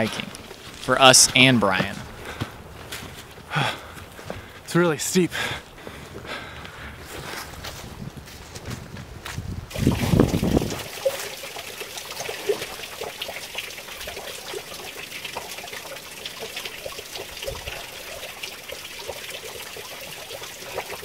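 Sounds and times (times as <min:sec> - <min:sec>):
water trickling and dripping: 0:09.7 - 0:21.0.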